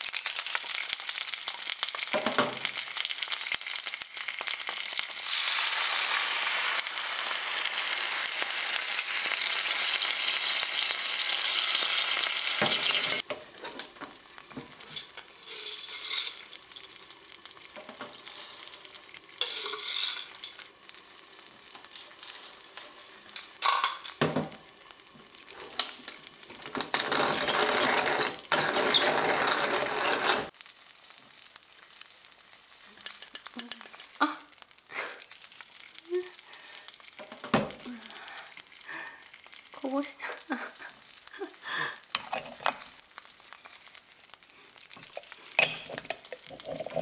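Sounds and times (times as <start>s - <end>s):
coffee mill grinding: 12.6s - 13.8s, 26.6s - 30.5s, 45.1s - 47.0s
coffee beans rattling into mill: 14.9s - 17.0s, 19.4s - 20.6s, 26.6s - 30.5s.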